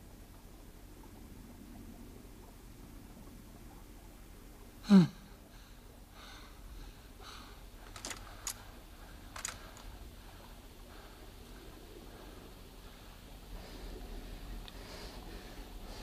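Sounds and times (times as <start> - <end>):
faint clicks: 7.8 - 10.0.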